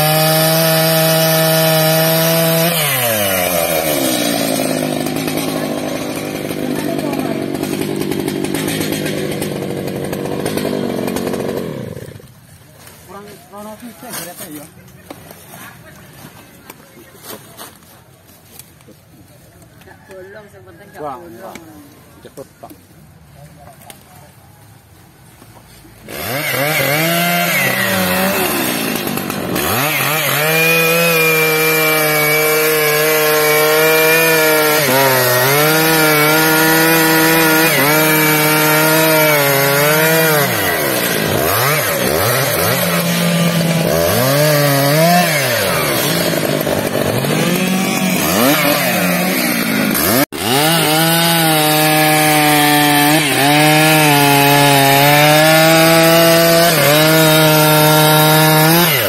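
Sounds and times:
chainsaw cutting log: 0:00.0 - 0:12.5, 0:25.9 - 0:59.0.

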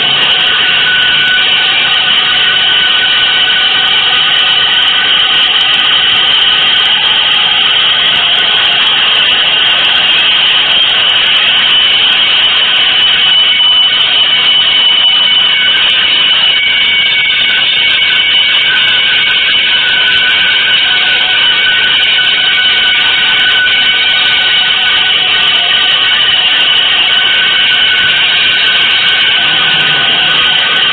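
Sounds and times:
high held tones: 0:00.0 - 0:30.9.

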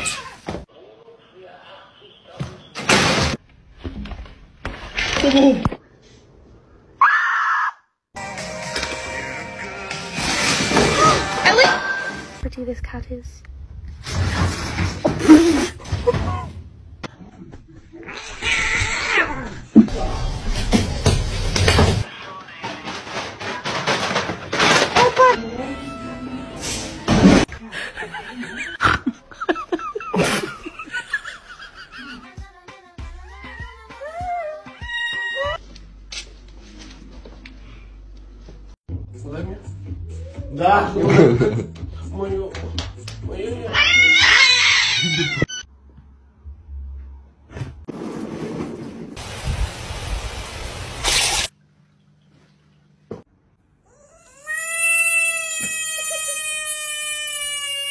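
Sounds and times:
person laughing: 0:27.6 - 0:32.2
cat yowling: 0:33.2 - 0:35.6, 0:43.7 - 0:45.6.

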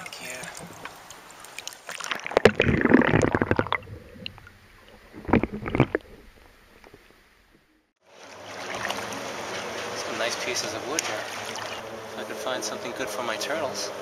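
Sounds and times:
river water splashing and gurgling: 0:08.0 - 0:13.0.

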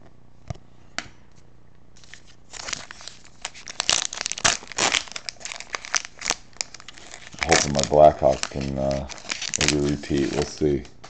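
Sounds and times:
foil wrapper crinkling and tearing: 0:02.0 - 0:10.8.

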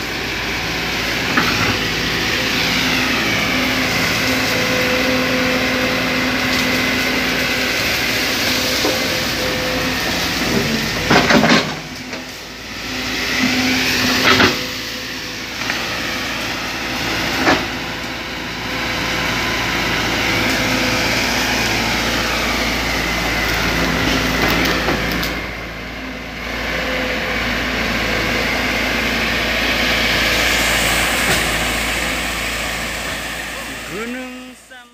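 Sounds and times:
excavator diesel engine running: 0:00.0 - 0:34.9.

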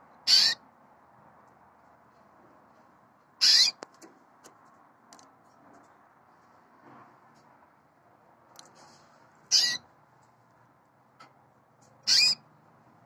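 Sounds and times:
canary high-pitched calls: 0:00.2 - 0:00.6, 0:03.4 - 0:03.8, 0:09.4 - 0:09.9, 0:11.9 - 0:12.5
faint canary chirps: 0:00.2 - 0:00.6, 0:03.4 - 0:03.8, 0:09.5 - 0:09.9, 0:12.0 - 0:12.5.

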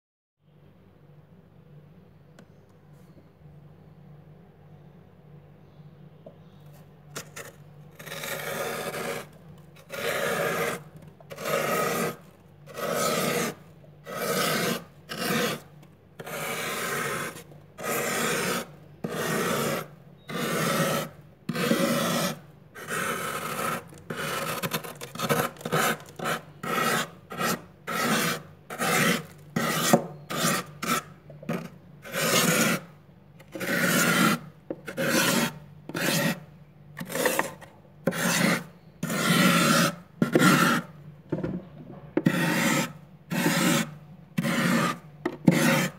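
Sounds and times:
metal spoon scraping frost: 0:06.7 - 0:41.0, 0:42.2 - 0:45.9.

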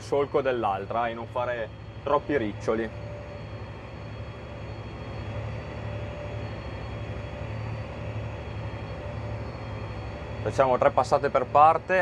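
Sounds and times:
faint even whine: 0:00.0 - 0:12.0
tractor diesel engine droning: 0:00.0 - 0:12.0.

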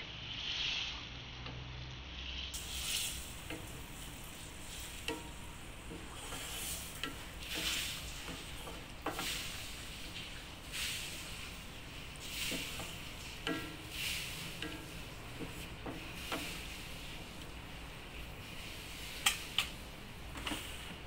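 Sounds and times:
wet stirring of thick food: 0:02.6 - 0:21.0
spatula knocking on pan: 0:03.4 - 0:03.8, 0:05.0 - 0:06.4, 0:07.0 - 0:09.4, 0:12.5 - 0:13.9, 0:14.6 - 0:16.6.

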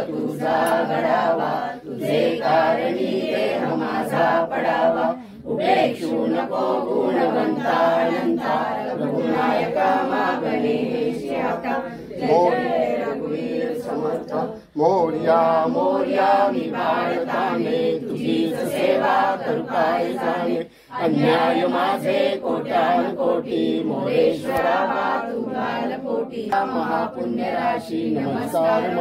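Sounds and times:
group chanting a hymn: 0:00.0 - 0:29.0.

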